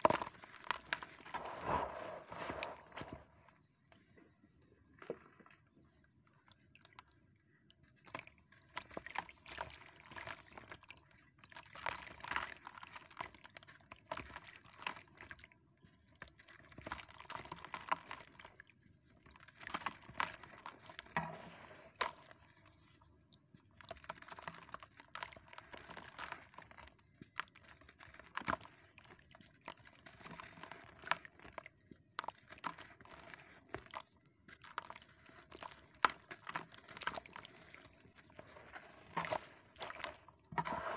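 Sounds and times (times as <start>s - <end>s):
gritty crunching and crackling: 0.0s - 3.6s, 34.7s - 40.9s
water splashing and sloshing: 16.0s - 40.9s.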